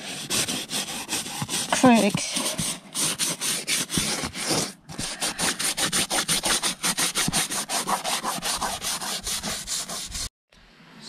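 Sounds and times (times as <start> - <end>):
toothbrush scrubbing vinyl upholstery: 0.0 - 10.3.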